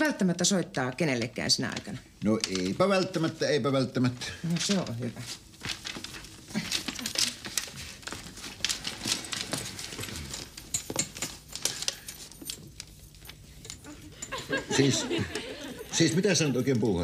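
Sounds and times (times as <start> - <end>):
leather handbag rustling: 4.5 - 14.2.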